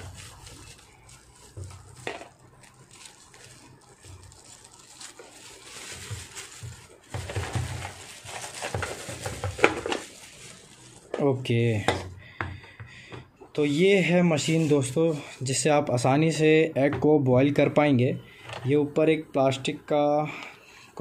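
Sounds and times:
plastic wrapper crinkling: 0.0s - 11.6s.

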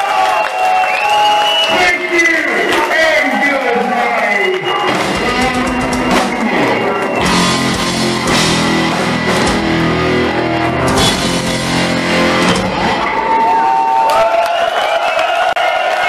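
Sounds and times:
distorted electric guitar: 4.6s - 13.7s
bass guitar: 4.6s - 13.8s
drum kit: 4.6s - 14.0s.

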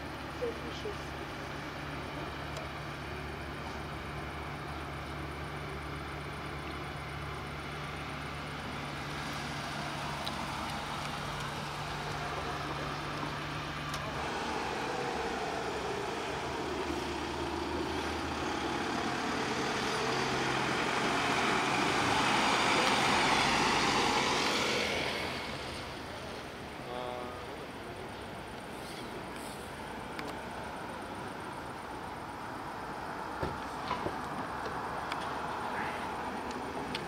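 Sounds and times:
low engine hum: 0.0s - 37.0s
vehicle driving past: 6.9s - 26.4s.

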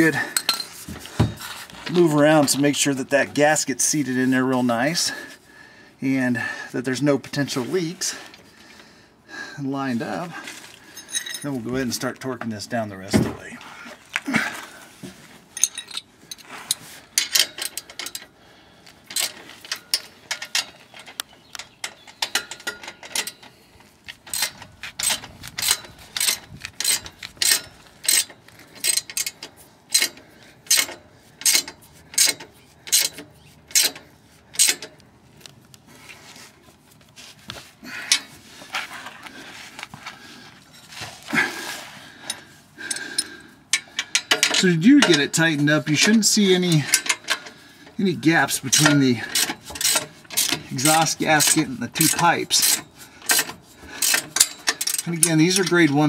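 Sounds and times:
hand ratchet clicking: 19.1s - 23.5s, 24.2s - 35.0s, 48.7s - 56.0s.

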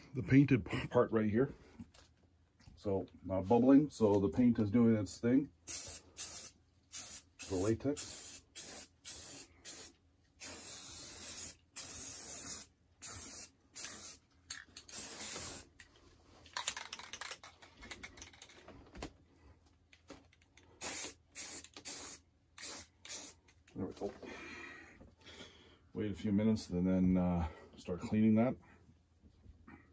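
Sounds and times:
spray paint can hissing: 5.7s - 14.2s, 14.9s - 15.7s, 20.8s - 23.4s.

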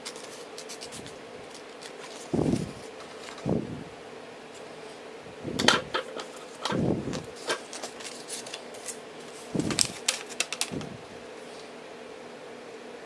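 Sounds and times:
paper rustling: 0.0s - 3.6s, 5.6s - 11.7s
faint steady hum: 0.0s - 13.0s.

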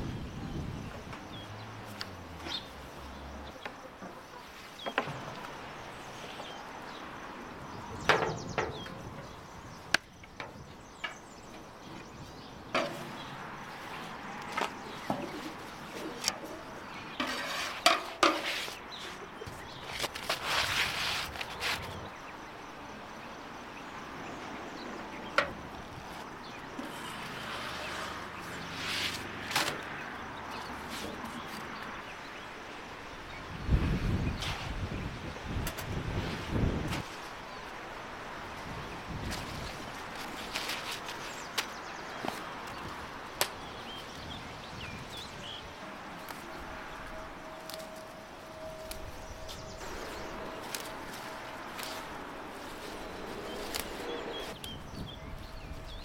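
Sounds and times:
outdoor background noise: 0.0s - 56.0s
dough rustling scrape: 17.2s - 19.2s, 20.0s - 22.0s.

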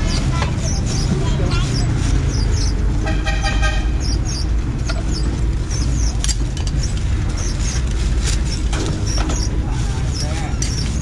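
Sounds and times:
street traffic rumble: 0.0s - 11.0s
vehicle horn toot: 3.0s - 4.0s.

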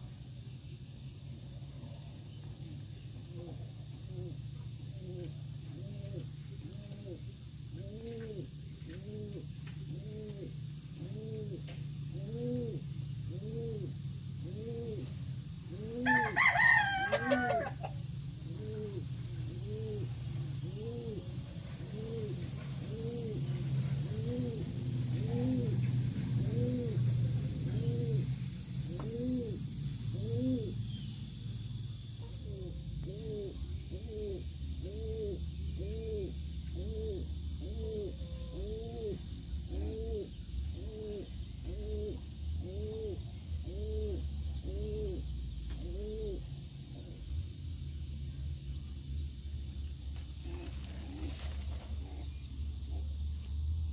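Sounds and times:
steady low hum: 0.0s - 53.9s
pigeons cooing: 2.6s - 31.0s, 32.2s - 47.3s, 50.4s - 53.2s
rooster crowing: 15.9s - 18.0s.

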